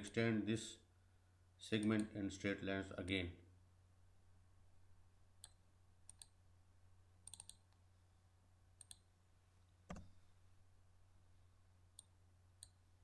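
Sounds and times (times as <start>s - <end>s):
faint mouse clicks: 1.8s - 2.1s, 5.4s - 6.4s, 7.2s - 7.8s, 8.8s - 9.1s, 9.8s - 10.2s.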